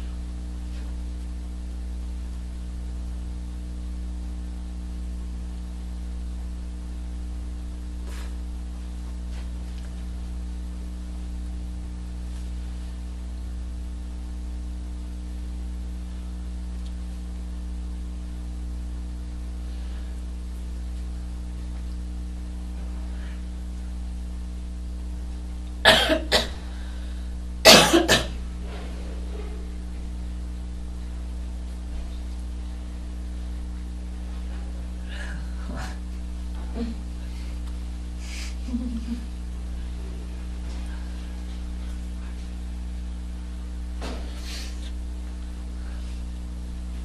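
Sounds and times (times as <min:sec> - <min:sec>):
electrical hum: 0:00.0 - 0:47.0
person coughing: 0:25.8 - 0:26.6, 0:27.6 - 0:28.4.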